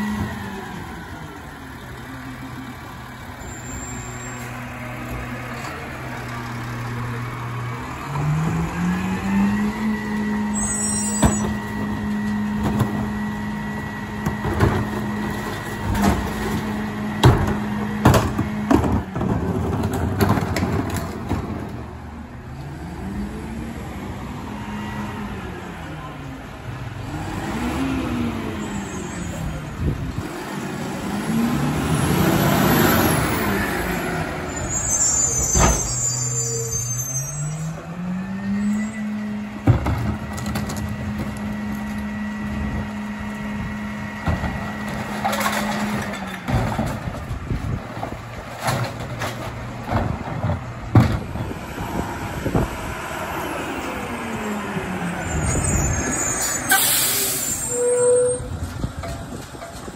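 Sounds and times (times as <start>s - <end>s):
garbage truck engine revving: 4.0s - 59.9s
clanks of recycling being dumped: 11.1s - 21.9s, 39.5s - 42.2s, 43.8s - 51.5s, 58.4s - 59.9s.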